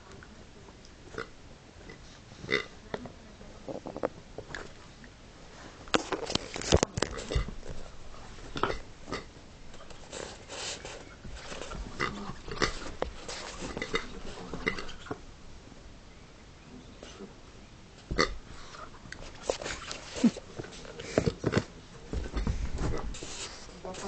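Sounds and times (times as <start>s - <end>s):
dog scuffling with a toy: 9.8s - 14.6s.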